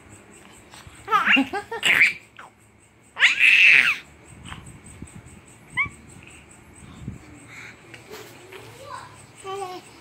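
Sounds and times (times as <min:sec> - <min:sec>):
baby squealing: 0:03.2 - 0:04.0.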